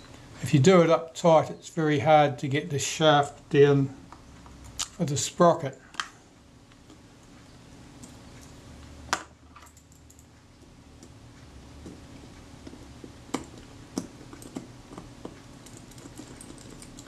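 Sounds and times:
small metal parts clicking: 15.6s - 17.0s.

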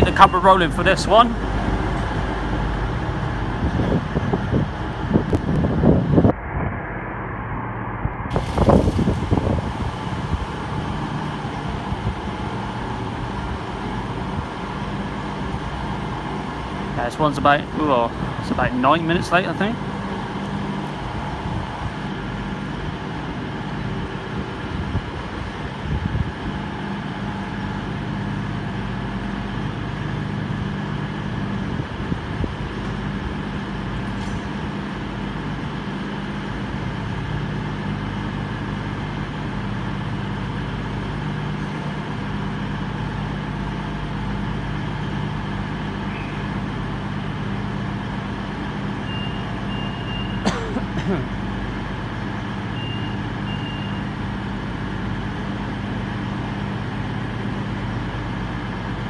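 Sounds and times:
diesel train engines idling: 0.0s - 59.0s.

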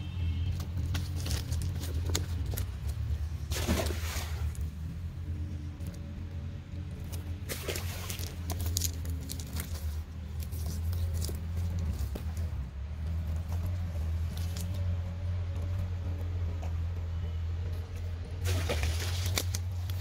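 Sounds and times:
net and fish rustling: 7.0s - 12.6s, 18.4s - 20.0s.

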